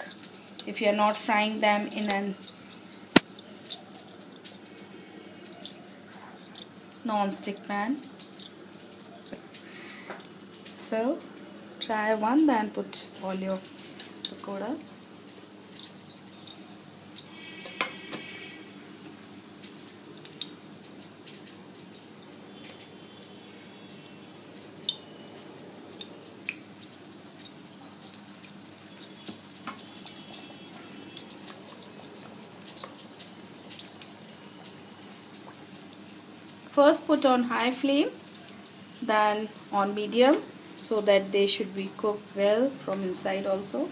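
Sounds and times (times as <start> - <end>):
frying in hot oil: 0.0 - 43.9.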